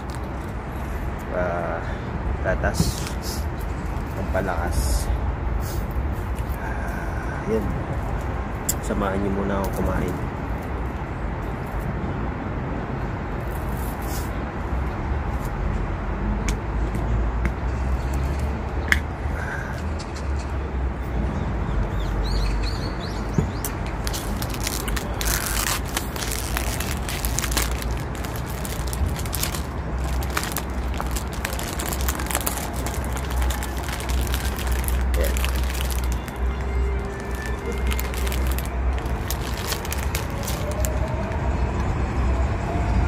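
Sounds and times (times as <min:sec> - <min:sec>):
plastic wrapping crinkling: 0:00.0 - 0:00.5, 0:23.9 - 0:41.3.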